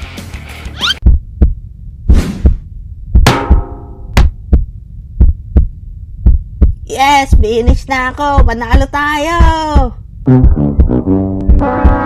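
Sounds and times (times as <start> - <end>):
cartoon heartbeat thumps: 0.9 - 12.0
sharp hit with ringing tail: 3.3 - 4.2.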